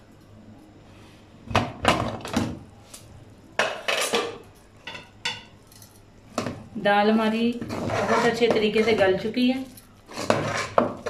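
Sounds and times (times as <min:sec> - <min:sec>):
metal lid clanking and scraping: 0:03.6 - 0:05.5.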